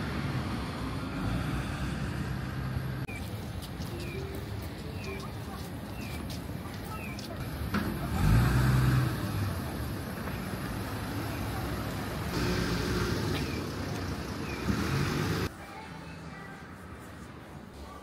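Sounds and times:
road noise: 0:00.0 - 0:18.0
vehicle engine passing: 0:07.4 - 0:15.5.

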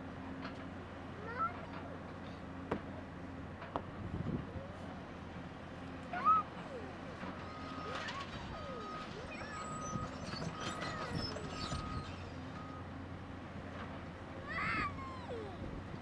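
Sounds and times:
heavy diesel engines running: 0:00.0 - 0:16.0.

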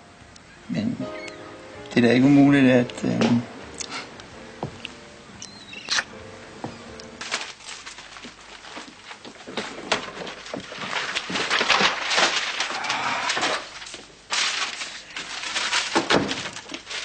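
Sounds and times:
objects clattering: 0:06.7 - 0:17.0
papers rustling: 0:06.7 - 0:17.0.

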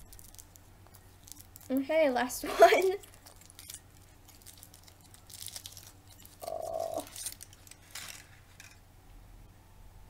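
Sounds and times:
foil crinkling: 0:00.0 - 0:08.8
chocolate shell breaking: 0:02.9 - 0:08.8.

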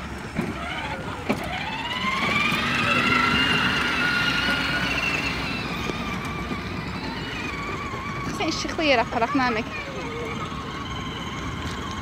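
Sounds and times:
electric toy vehicle motor whine: 0:00.0 - 0:12.0.

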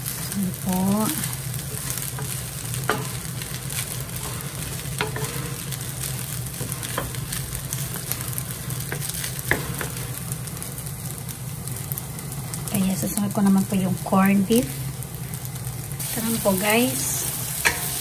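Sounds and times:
rice sizzling in a frying pan: 0:00.0 - 0:18.0
wooden spatula knocking pan: 0:05.0 - 0:05.5.

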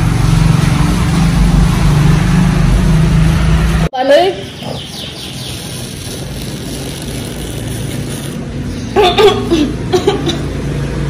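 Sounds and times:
person laughing: 0:08.8 - 0:10.5.

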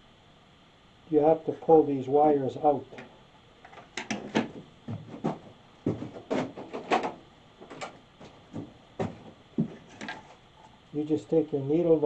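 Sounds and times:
tools clicking on a workbench: 0:03.6 - 0:04.5.

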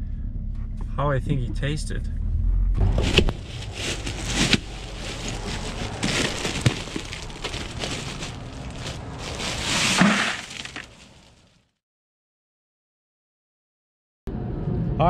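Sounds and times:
ice tumbling into a bucket: 0:03.0 - 0:11.4
plastic bag crinkling: 0:03.0 - 0:11.5.

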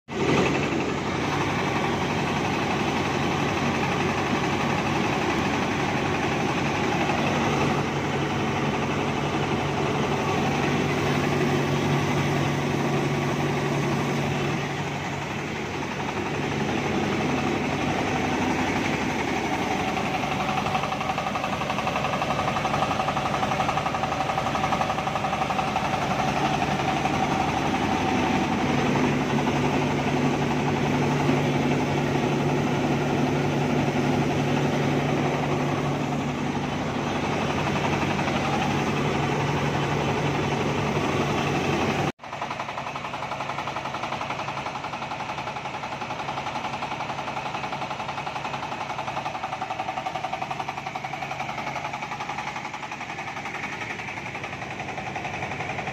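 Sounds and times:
rice mill running: 0:00.1 - 0:55.9.

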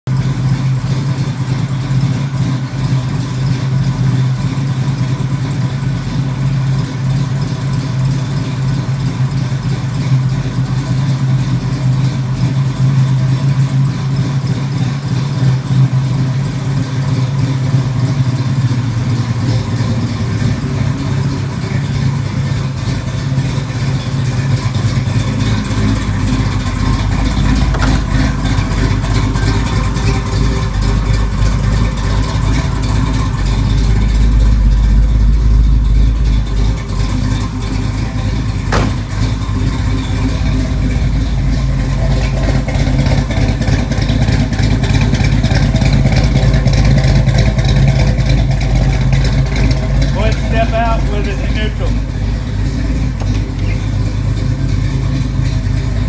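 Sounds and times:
car engine idling: 0:00.0 - 0:56.0.

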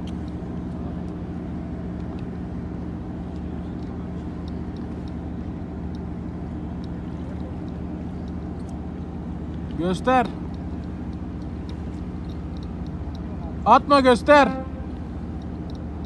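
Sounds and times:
boat engine idling: 0:00.0 - 0:16.0
faint ticks: 0:03.2 - 0:13.5, 0:14.8 - 0:16.0.

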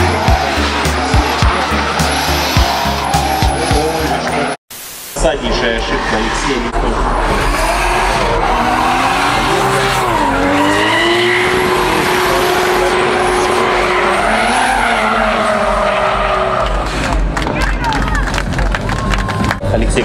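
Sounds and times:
tyres screeching: 0:00.0 - 0:04.6
car engines at high revs: 0:06.3 - 0:17.4.

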